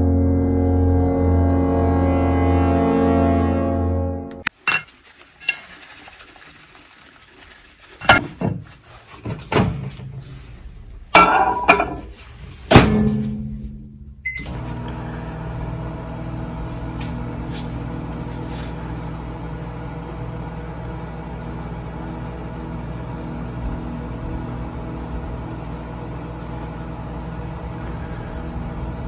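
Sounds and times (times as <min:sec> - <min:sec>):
microwave oven humming: 0:12.8 - 0:29.0.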